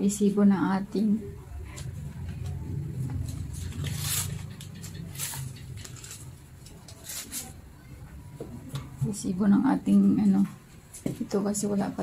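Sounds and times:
low rumble: 0:01.0 - 0:06.8
items rustling and knocking: 0:01.6 - 0:09.3, 0:10.2 - 0:11.6.

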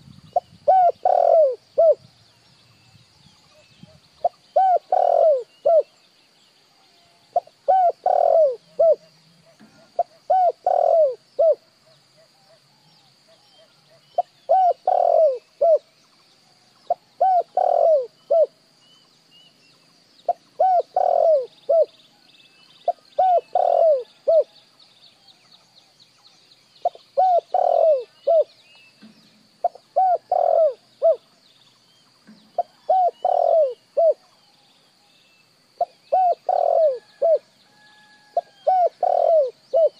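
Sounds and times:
dove cooing: 0:00.0 - 0:02.0, 0:03.5 - 0:05.9, 0:07.4 - 0:11.6, 0:13.3 - 0:15.9, 0:16.9 - 0:18.6, 0:20.3 - 0:22.0, 0:22.8 - 0:24.6, 0:26.8 - 0:28.5, 0:29.6 - 0:31.3, 0:32.6 - 0:34.4, 0:35.8 - 0:39.9.

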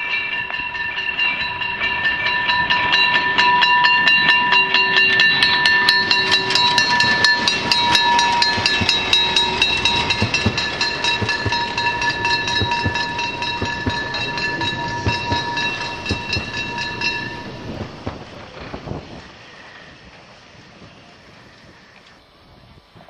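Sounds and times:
high-pitched ringing tone: 0:00.0 - 0:18.0
steam locomotive exhaust chuffs: 0:00.1 - 0:22.6
coaches rolling past: 0:06.1 - 0:22.2.

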